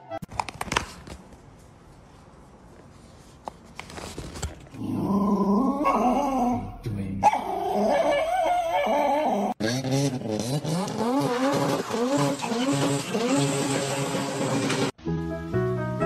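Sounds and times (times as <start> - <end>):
small dog growling: 4.8 - 6.7.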